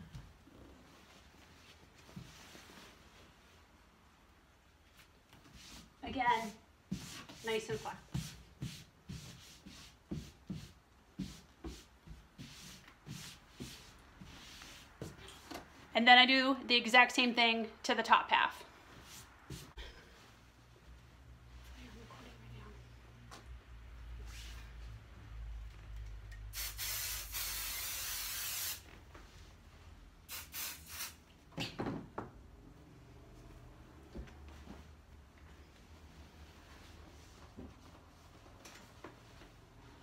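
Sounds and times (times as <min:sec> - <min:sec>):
palms brushing across fabric: 0:00.8 - 0:04.0, 0:04.8 - 0:15.9, 0:18.8 - 0:22.3, 0:24.1 - 0:24.8, 0:34.3 - 0:40.0
aerosol spray hissing: 0:26.5 - 0:28.8, 0:30.3 - 0:31.2.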